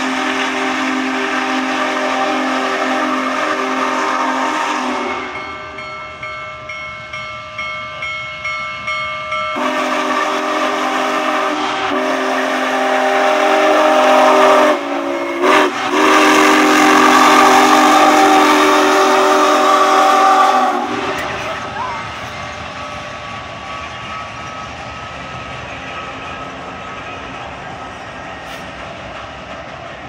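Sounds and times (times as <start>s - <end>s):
steam whistle blasts: 0.0s - 5.6s, 9.6s - 22.1s
locomotive bell ringing: 4.9s - 10.9s, 16.7s - 28.6s.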